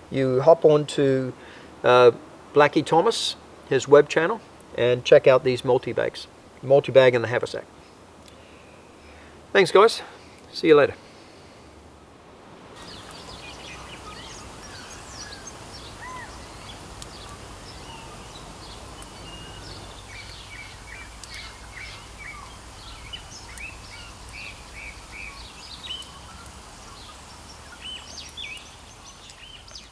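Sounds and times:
steady low background noise: 0.0 - 29.9
birds chirping and singing: 12.8 - 29.9.

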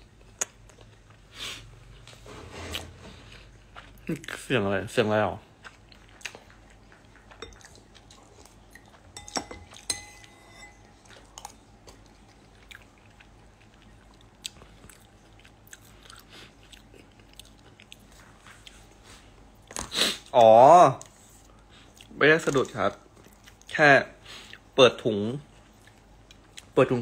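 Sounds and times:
chewing: 2.8 - 4.4, 5.4 - 9.8, 10.8 - 19.0, 25.6 - 26.8.

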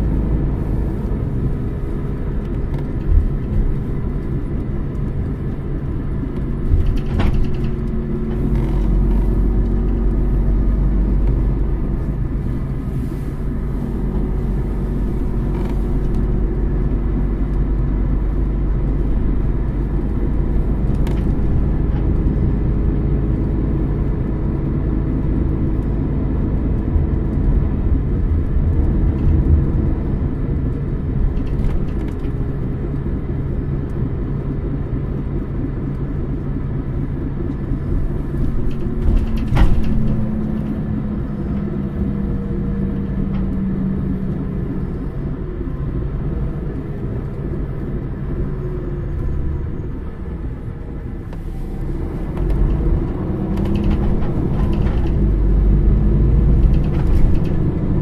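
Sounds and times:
diesel bus engine idling: 7.5 - 23.0.

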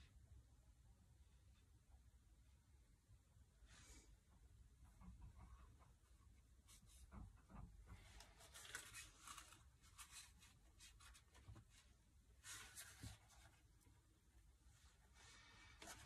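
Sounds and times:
tissue rustling and dabbing paper: 8.0 - 13.8.

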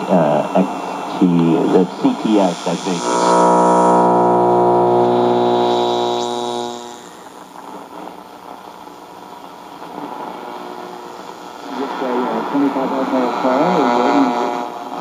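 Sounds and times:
hazy radio murmur: 0.0 - 15.0.

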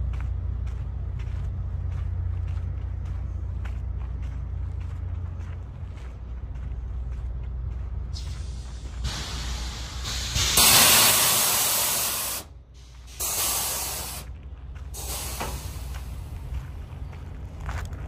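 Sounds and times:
diesel engine rumble: 0.0 - 18.0
air brakes hissing: 8.1 - 16.5.

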